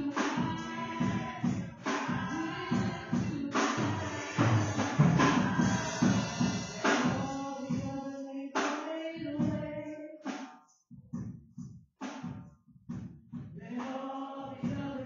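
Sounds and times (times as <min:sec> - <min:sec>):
singing: 0:00.0 - 0:10.6, 0:13.6 - 0:15.0.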